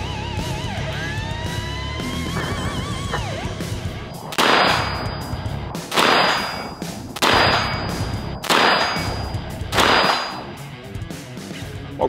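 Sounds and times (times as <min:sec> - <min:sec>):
rifle shots echoing: 0:02.4 - 0:10.6.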